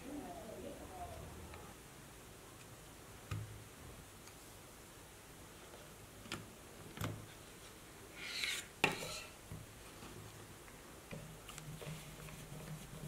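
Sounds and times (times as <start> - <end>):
scraping rustle on table: 7.6 - 10.2.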